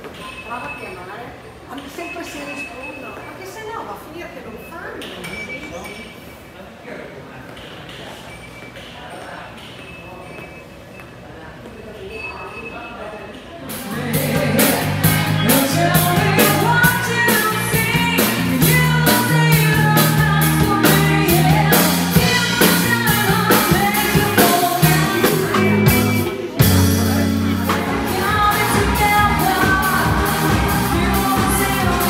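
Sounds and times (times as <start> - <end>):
live rock and roll band: 13.7 - 32.0
person singing: 13.7 - 32.0.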